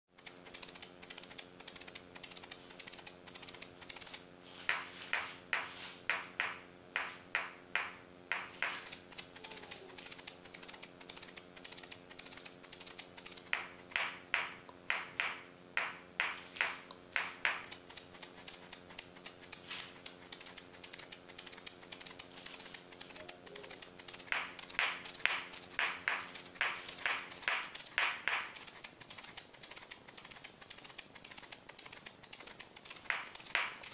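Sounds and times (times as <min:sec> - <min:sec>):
maracas shaken in rhythm: 0:17.2 - 0:33.9.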